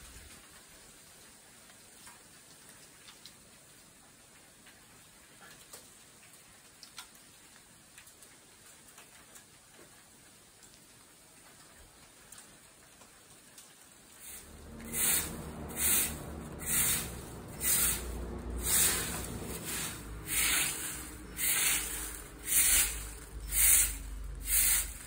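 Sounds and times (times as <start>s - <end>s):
footsteps crunching through dry leaves: 14.3s - 24.4s.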